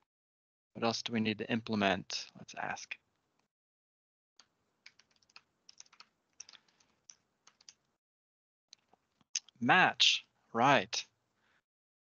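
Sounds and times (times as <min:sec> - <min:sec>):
faint keyboard typing: 0:04.4 - 0:08.0, 0:08.7 - 0:09.6.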